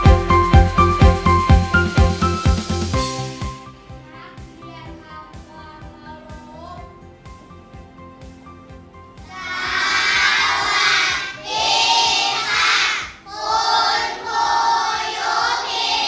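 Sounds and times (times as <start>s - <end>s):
quiet music: 0.0s - 16.0s
children chanting in unison: 9.2s - 16.0s.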